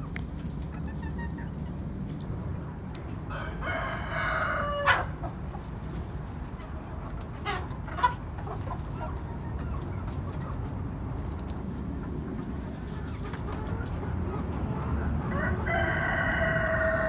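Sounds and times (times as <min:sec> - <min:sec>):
chickens clucking: 0:00.0 - 0:17.0
chicken long drawn-out call: 0:03.2 - 0:05.3, 0:15.0 - 0:17.0.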